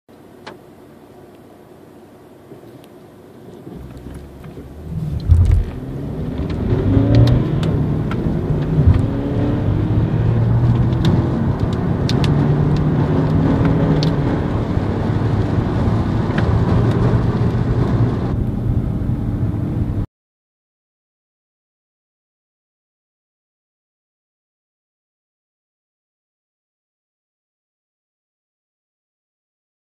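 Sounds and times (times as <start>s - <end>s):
car engine accelerating with gear changes: 2.5s - 20.0s.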